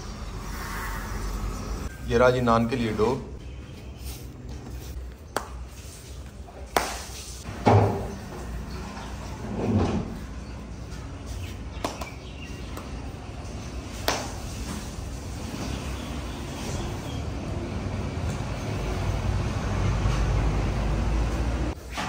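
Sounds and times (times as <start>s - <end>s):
sharp kitchen knocks: 7.6s - 8.2s.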